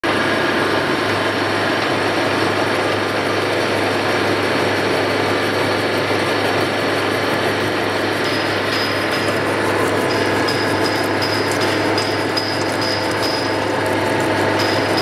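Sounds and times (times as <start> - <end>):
low machine hum: 0.0 - 15.0
gear cutting machine rattle: 4.4 - 15.0.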